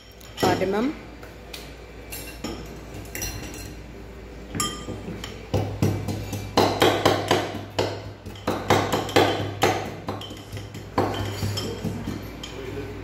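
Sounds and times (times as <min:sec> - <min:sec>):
pestle striking metal mortar: 0:04.9 - 0:12.3.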